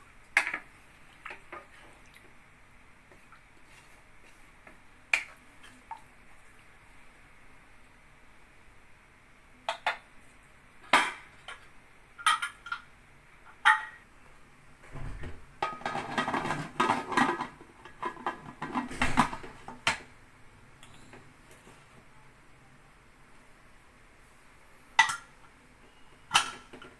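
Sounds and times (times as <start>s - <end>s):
metal lid clattering and scraping: 15.6s - 19.5s.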